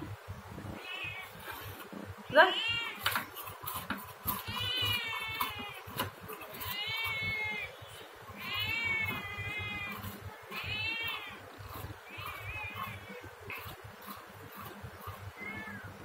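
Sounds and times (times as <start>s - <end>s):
cat meowing: 0.8s - 1.4s, 4.3s - 7.8s, 8.4s - 11.4s, 15.3s - 16.0s.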